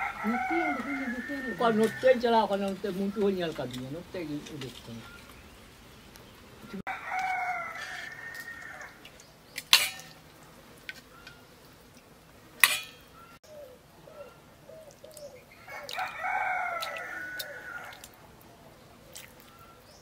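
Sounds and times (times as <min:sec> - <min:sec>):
rooster crowing: 0:00.0 - 0:02.6, 0:06.7 - 0:09.0, 0:15.5 - 0:18.2
soft bird calls: 0:04.6 - 0:06.8, 0:13.0 - 0:20.0
ladle clinking on metal pot: 0:09.7 - 0:10.2, 0:12.6 - 0:13.0.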